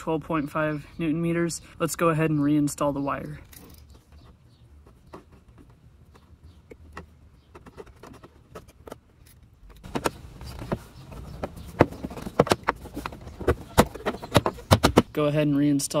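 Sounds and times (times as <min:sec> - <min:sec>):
plastic panel clacks and knocks: 0:04.1 - 0:09.1, 0:09.7 - 0:15.2.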